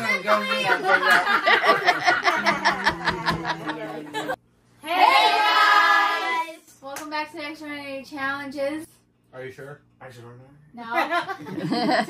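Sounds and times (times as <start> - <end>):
group of people laughing: 0.5 - 4.4, 11.0 - 12.0
loud group cheer: 4.8 - 6.5.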